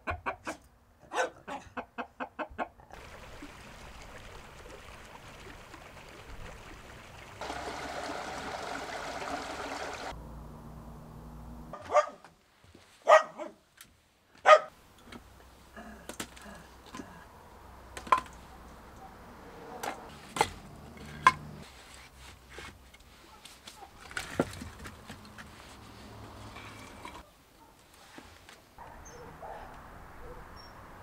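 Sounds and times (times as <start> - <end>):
dog barking: 0.4 - 1.6, 11.7 - 12.3, 13.0 - 13.6, 14.4 - 14.7, 27.6 - 27.8, 28.8 - 30.7.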